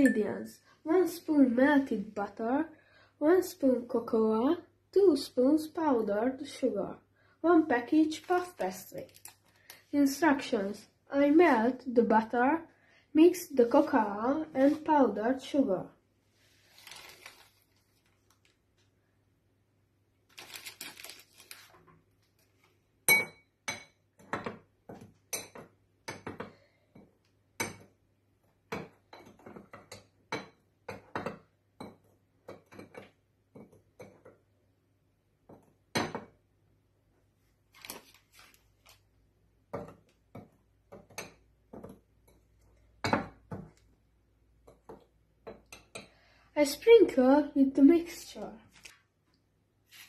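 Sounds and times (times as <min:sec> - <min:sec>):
bag rustling: 0:16.6 - 0:18.2.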